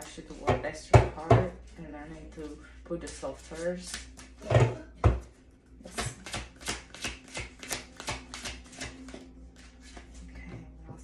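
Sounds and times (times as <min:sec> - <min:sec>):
cards being shuffled: 0:03.1 - 0:04.4, 0:05.9 - 0:10.2.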